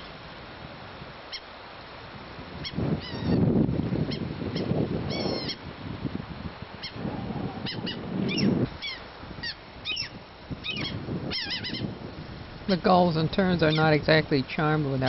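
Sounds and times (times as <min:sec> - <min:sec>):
gulls and terns crying: 0:02.6 - 0:03.5, 0:04.1 - 0:05.6, 0:06.8 - 0:12.0, 0:13.6 - 0:14.0.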